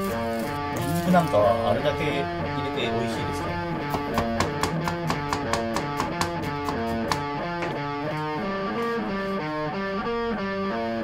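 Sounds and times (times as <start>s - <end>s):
guitar music: 0.0s - 11.0s
knife chopping on plastic board: 3.8s - 7.8s.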